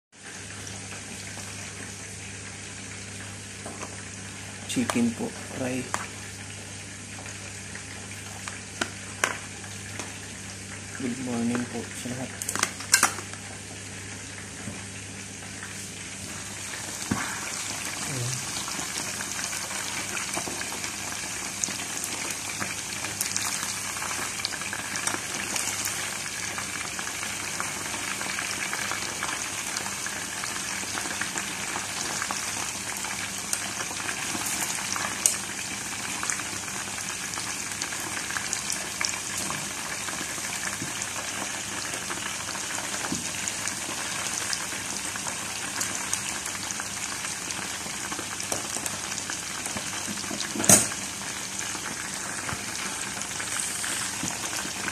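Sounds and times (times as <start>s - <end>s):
chicken deep-frying in oil: 0.2s - 54.9s.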